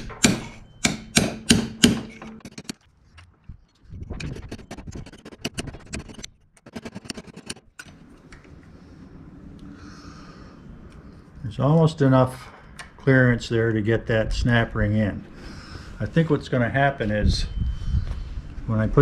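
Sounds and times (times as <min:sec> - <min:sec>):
hammer striking metal punch: 0:00.0 - 0:02.7.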